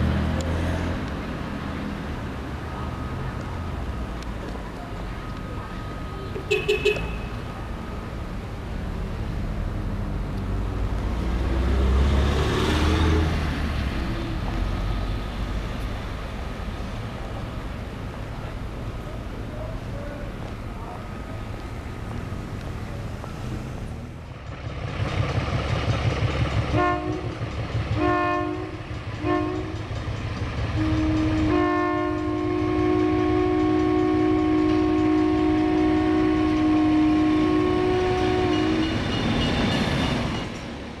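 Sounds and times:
train low rumble: 0.0 - 41.0
train two-tone horn blasts: 6.5 - 7.4, 26.7 - 27.4, 28.0 - 29.9, 30.7 - 39.6.

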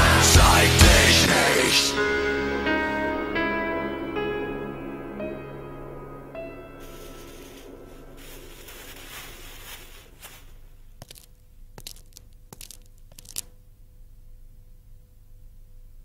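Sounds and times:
plastic sheeting rustling and crinkling: 6.8 - 13.6.

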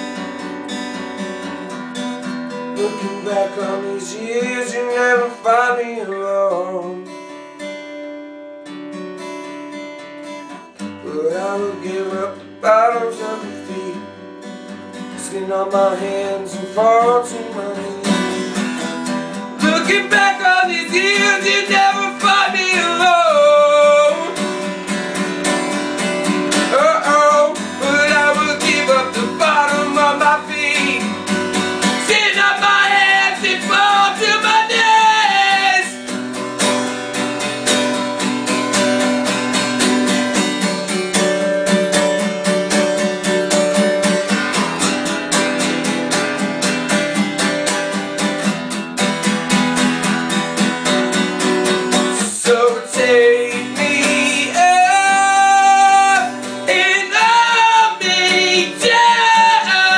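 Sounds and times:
acoustic guitar strumming: 0.0 - 59.9
sliding melody line: 25.5 - 36.2.

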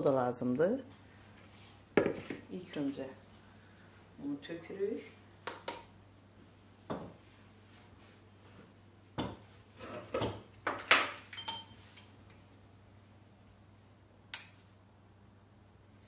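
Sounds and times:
kitchenware clinks and knocks: 9.2 - 11.8.

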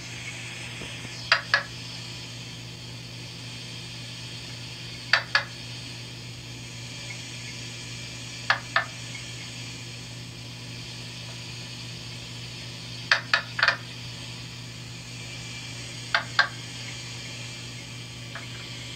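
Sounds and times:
low hum and hiss: 0.0 - 18.9
frog clucking calls: 1.2 - 1.7, 13.1 - 13.8.

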